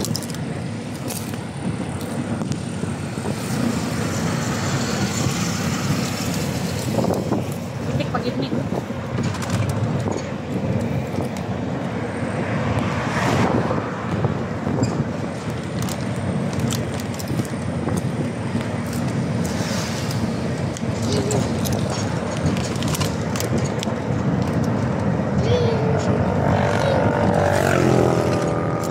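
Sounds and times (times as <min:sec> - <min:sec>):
pickup truck road and engine noise: 0:00.0 - 0:28.9
wind on microphone: 0:00.0 - 0:28.9
clicks and rattles: 0:20.7 - 0:25.1.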